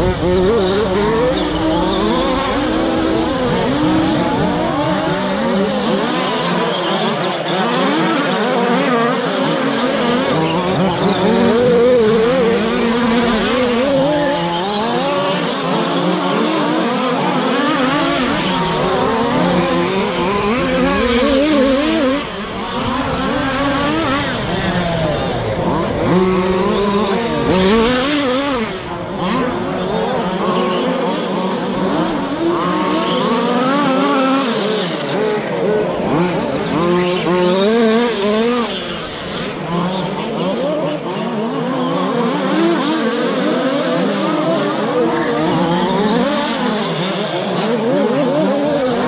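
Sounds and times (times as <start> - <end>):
rc truck motors whining: 0.0 - 49.0.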